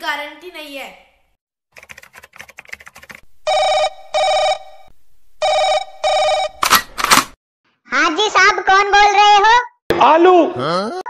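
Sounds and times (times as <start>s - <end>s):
telephone ringing: 3.2s - 6.9s
quick clicks: 6.6s - 7.4s.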